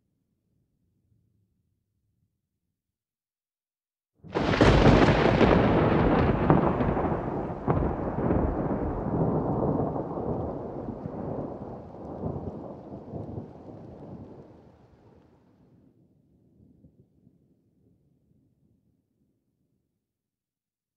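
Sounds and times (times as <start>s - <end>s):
sharp thunder cracks: 4.3s - 14.6s
thunder rumbling: 4.3s - 15.2s.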